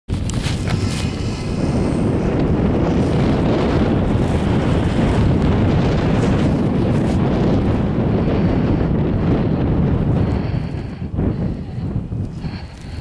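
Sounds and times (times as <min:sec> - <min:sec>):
wind buffeting microphone: 0:00.1 - 0:13.0.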